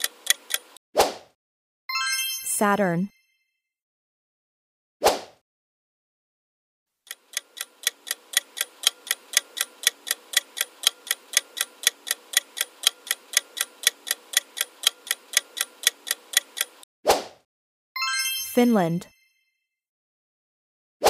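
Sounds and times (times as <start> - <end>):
countdown timer ticking: 0.0 - 0.8, 7.1 - 16.9.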